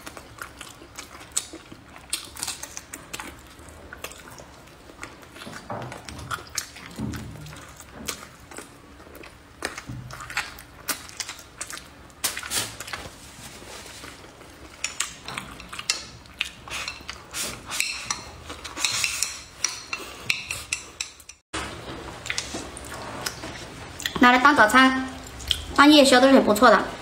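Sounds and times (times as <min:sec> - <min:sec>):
chewing: 0:00.0 - 0:13.1, 0:13.8 - 0:21.2
chopsticks scraping a plate: 0:16.7 - 0:21.4.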